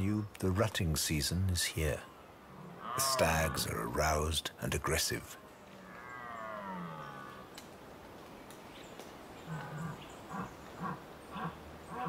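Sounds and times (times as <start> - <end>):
deer stag roaring: 2.5 - 3.9, 5.8 - 7.5.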